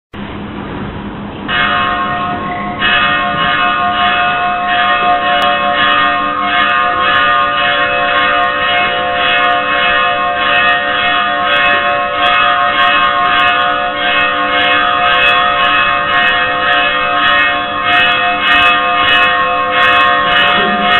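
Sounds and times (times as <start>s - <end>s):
church bells ringing: 1.5s - 20.9s.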